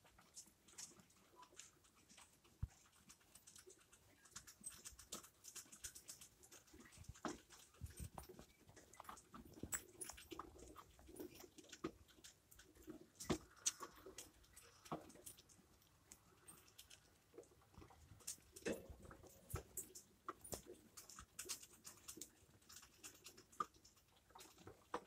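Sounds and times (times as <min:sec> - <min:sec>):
rat claws scratching on cage bars: 0:00.1 - 0:25.0.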